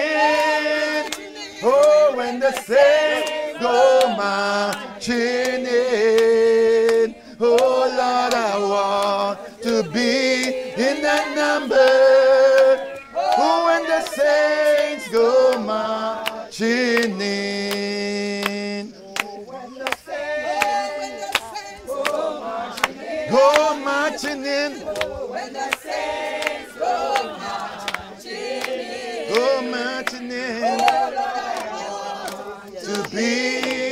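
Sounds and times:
man singing: 0.0s - 22.0s, 23.2s - 25.0s, 29.3s - 31.2s, 32.8s - 33.9s
group singing a cappella hymn: 0.0s - 33.9s.

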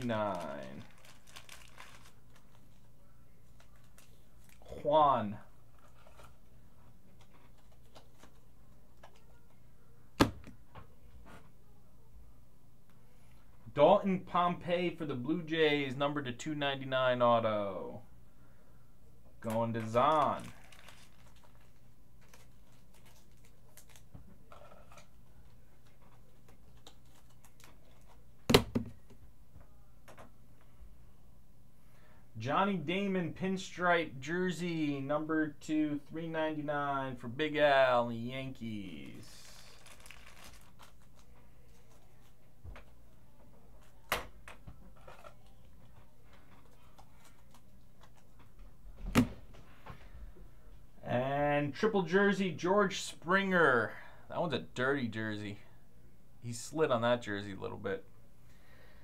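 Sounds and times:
packaging rustle: 0.0s - 2.8s, 19.9s - 28.2s, 39.1s - 42.3s
low room hum: 0.0s - 59.0s
cards clicking and rustling: 39.1s - 42.4s.

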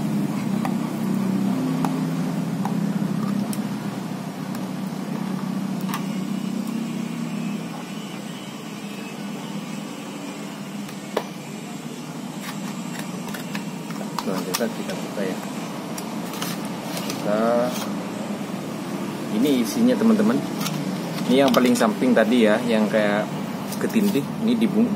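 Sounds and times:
low engine hum: 0.0s - 7.8s.

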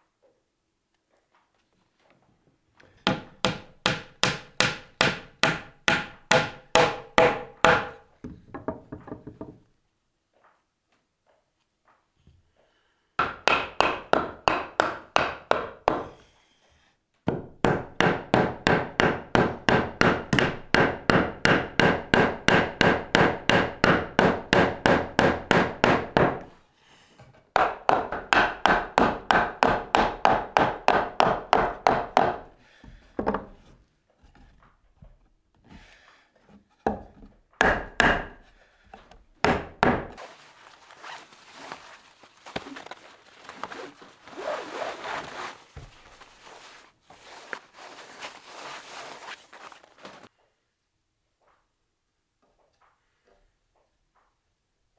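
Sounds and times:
wooden mallet striking timber: 3.0s - 9.6s, 13.2s - 16.1s, 17.3s - 26.4s, 37.6s - 38.4s, 39.4s - 40.2s.

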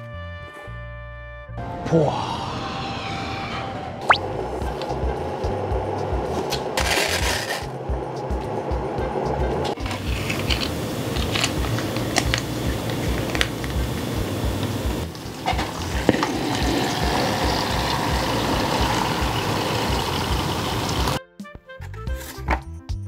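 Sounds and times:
plastic sachets crinkling: 9.8s - 13.8s
hot water pouring into paper cup: 9.8s - 21.2s.

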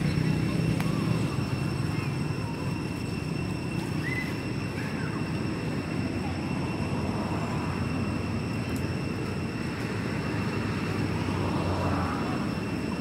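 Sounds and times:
high-pitched hum: 0.0s - 13.0s
low outdoor rumble: 0.0s - 13.0s.

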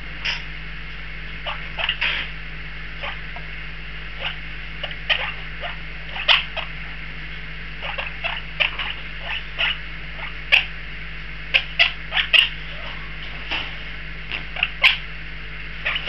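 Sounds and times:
parakeet chicks squeaking: 1.3s - 2.3s, 3.0s - 3.5s, 4.1s - 7.0s, 7.8s - 10.8s, 11.5s - 15.1s, 15.8s - 16.0s.

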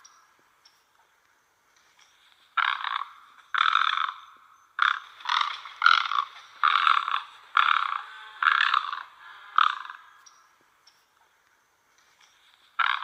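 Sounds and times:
egret harsh rasping calls: 2.6s - 10.2s, 12.8s - 13.0s.

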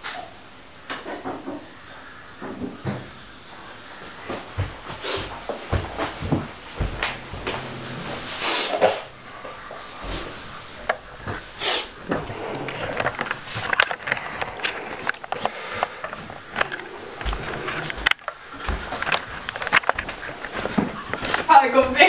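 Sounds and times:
person sniffing: 5.0s - 5.4s, 8.2s - 9.2s, 11.5s - 17.9s
knocks and clatter: 5.7s - 22.0s.

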